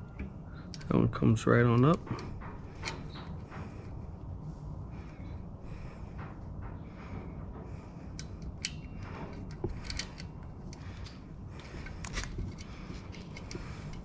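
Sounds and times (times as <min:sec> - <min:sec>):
small metallic clicks: 0:08.1 - 0:14.0.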